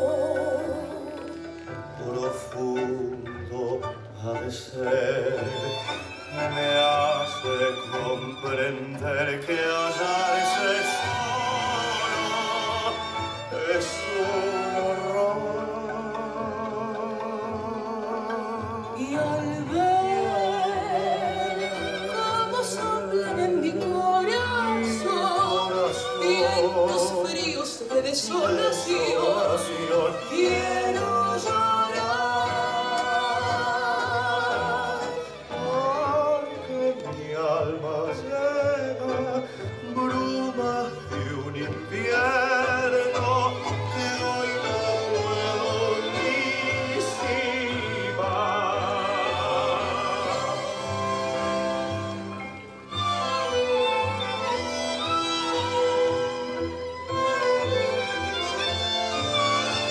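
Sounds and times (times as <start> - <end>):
orchestral vocal tango: 0.0 - 59.9.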